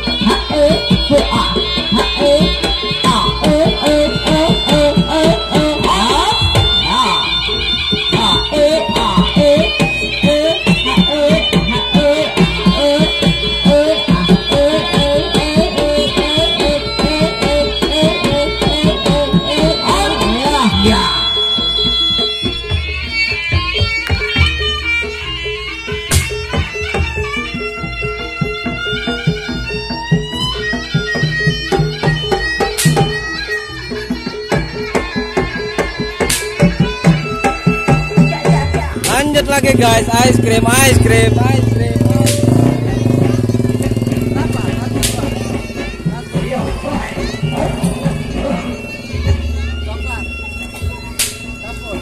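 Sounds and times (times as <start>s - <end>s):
reedy wind instrument melody: 0.0s - 52.0s
sharp struck percussion: 25.8s - 52.0s
fast hand drum strokes: 36.3s - 51.4s
higher melodic line: 37.1s - 52.0s.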